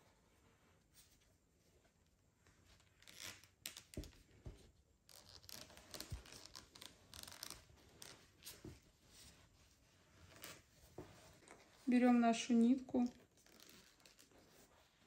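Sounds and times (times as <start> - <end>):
yarn rustling through stitches: 5.2 - 15.0.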